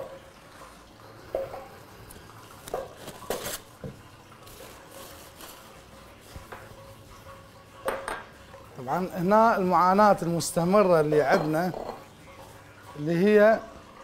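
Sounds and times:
faint steady background noise: 0.0s - 14.0s
kitchen knocks and clatters: 1.3s - 1.8s, 6.3s - 8.5s, 10.4s - 12.4s.

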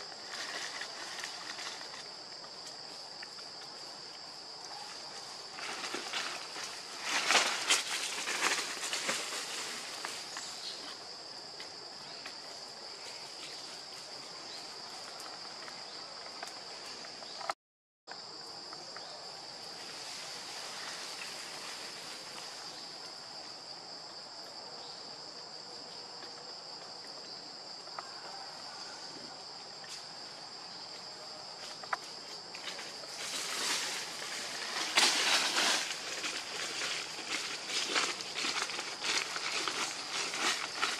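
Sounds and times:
crackling rustles: 0.0s - 3.5s, 4.7s - 11.0s, 31.6s - 40.9s
insects droning: 0.0s - 40.9s.

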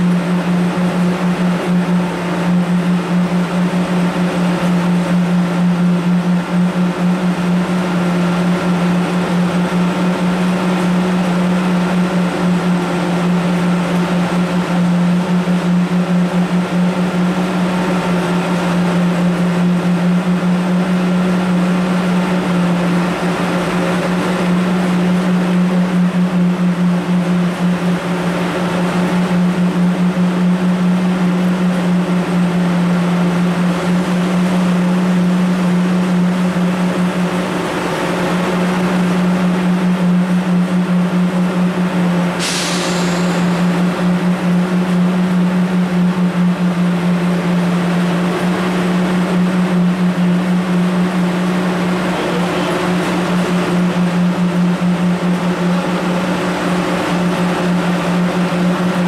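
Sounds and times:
electric train idling drone: 0.0s - 59.0s
higher steady tones: 42.4s - 46.3s.

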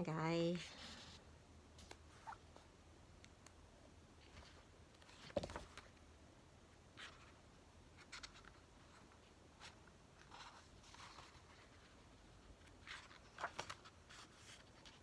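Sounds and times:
pages turning: 4.2s - 6.0s, 8.0s - 12.0s, 12.6s - 15.0s.

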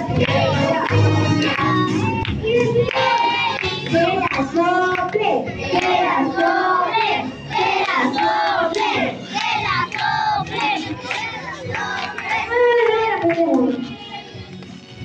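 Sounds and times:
woman singing through microphone: 0.0s - 6.9s, 12.0s - 14.4s
group singing birthday song: 0.0s - 14.5s
hand clapping: 0.2s - 5.2s, 5.8s - 6.5s, 7.8s - 12.4s.

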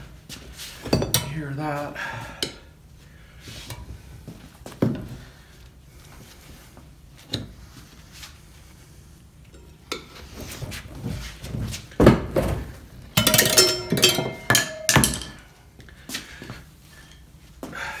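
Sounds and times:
tire irons clinking on metal: 13.1s - 15.6s.

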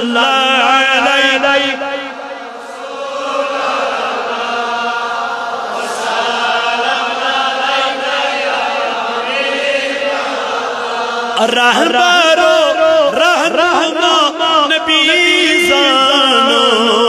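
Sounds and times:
man chanting devotional song: 0.0s - 4.3s, 6.0s - 17.0s.

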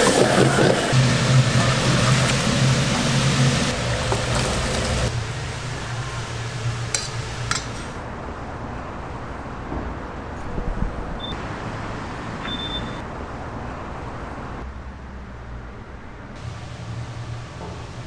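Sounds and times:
low hum: 0.9s - 8.0s.

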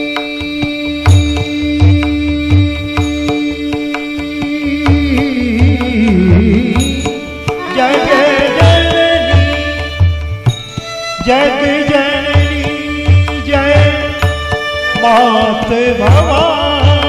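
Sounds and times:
tabla: 0.0s - 17.0s
low drum beat: 4.4s - 14.4s
wavering gliding melody: 7.5s - 10.0s.

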